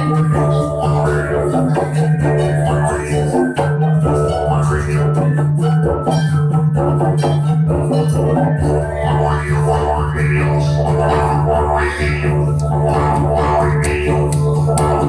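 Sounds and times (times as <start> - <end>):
didgeridoo droning: 0.0 - 15.0.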